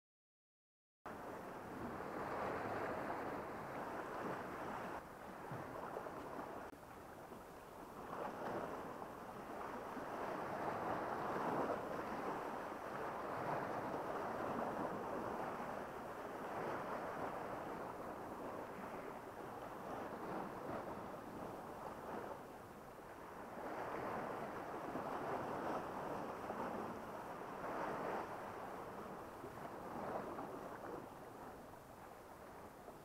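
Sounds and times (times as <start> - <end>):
sea waves washing on shore: 1.1 - 33.0.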